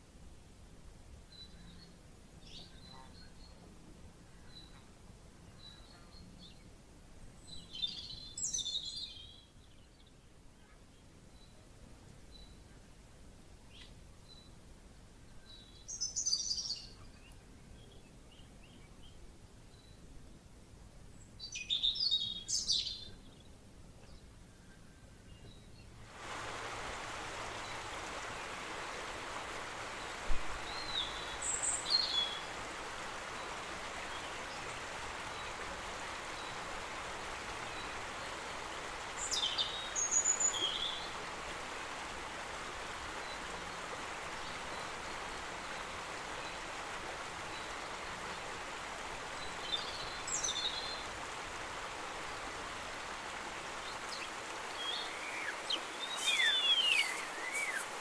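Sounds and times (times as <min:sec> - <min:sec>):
high bird chirps: 0:54.8 - 0:58.0.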